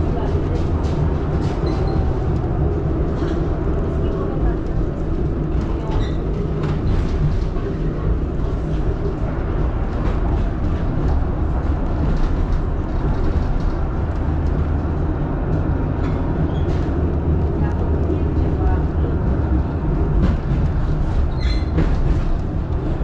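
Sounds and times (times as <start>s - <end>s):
tram wheels rumbling on rails: 0.0s - 23.0s.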